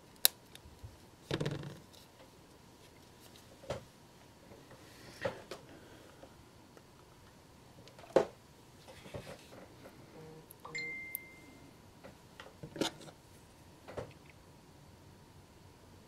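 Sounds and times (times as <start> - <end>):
high beep tone: 10.6 - 11.6.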